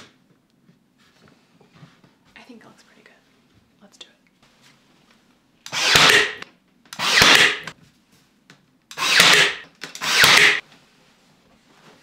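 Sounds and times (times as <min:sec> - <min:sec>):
nailer firing into wood: 0:05.7 - 0:06.4, 0:07.0 - 0:07.7, 0:09.0 - 0:10.6.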